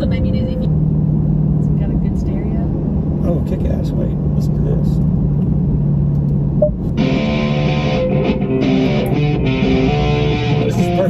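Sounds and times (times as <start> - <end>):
car cruising heard inside cabin: 0.0 - 11.0
plucked electric guitar music: 6.7 - 11.0.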